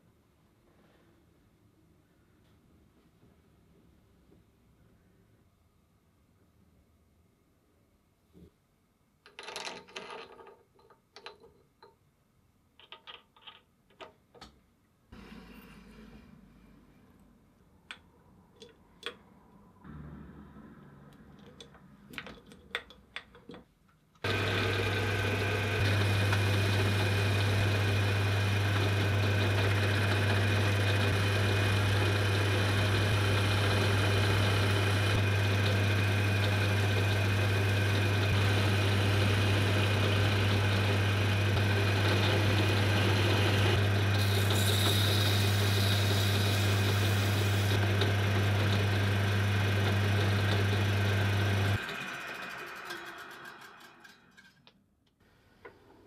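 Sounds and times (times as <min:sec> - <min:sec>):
electric motor humming: 0:24.2 - 0:53.0.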